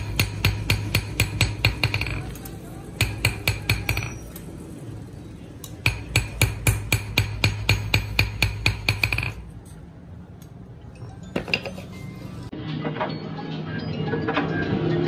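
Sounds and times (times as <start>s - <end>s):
hammer beating steel on anvil: 0.0s - 2.4s, 3.0s - 4.2s, 5.8s - 9.5s.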